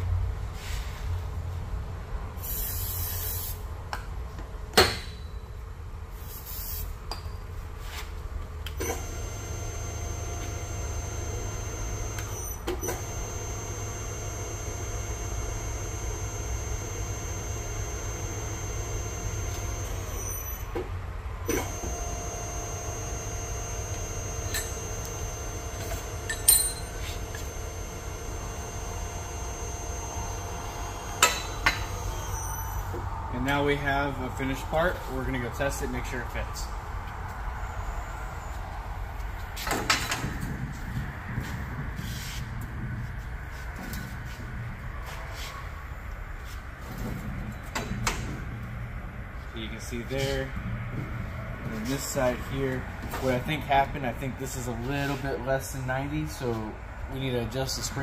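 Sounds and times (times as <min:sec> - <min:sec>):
machine whine: 0:08.7 - 0:36.0
sharp metallic clank: 0:26.3 - 0:27.0.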